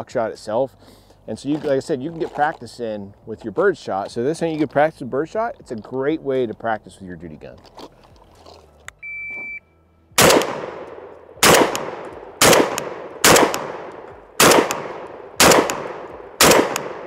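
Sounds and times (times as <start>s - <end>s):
short high beep: 9.0s - 9.8s
shotgun firing rapid shots: 10.2s - 17.0s.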